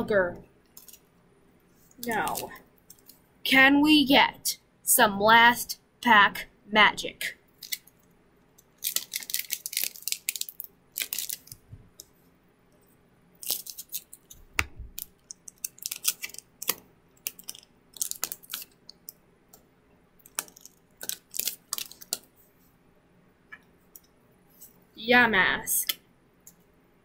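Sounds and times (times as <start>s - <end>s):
foil wrapper crinkling and tearing: 7.6s - 7.9s, 8.7s - 11.6s, 13.4s - 19.2s, 20.2s - 22.3s
cards clicking and rustling: 8.7s - 12.1s, 13.4s - 19.1s, 20.2s - 22.3s.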